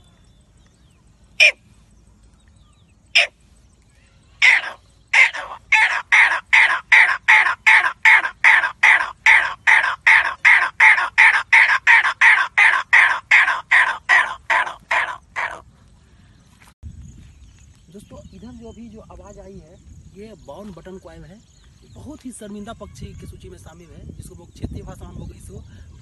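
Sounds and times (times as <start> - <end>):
man imitating partridge call: 1.4 - 1.6, 4.4 - 15.6.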